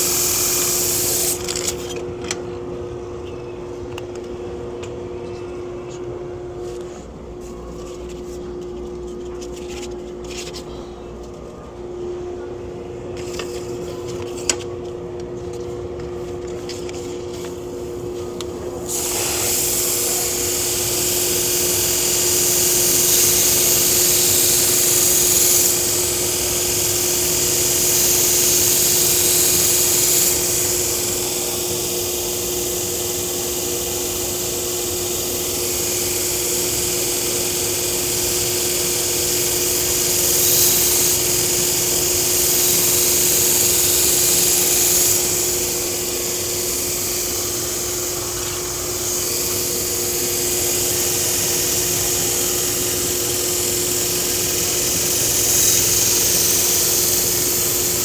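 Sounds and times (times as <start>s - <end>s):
steel blade hissing on belt: 18.9s - 58.0s.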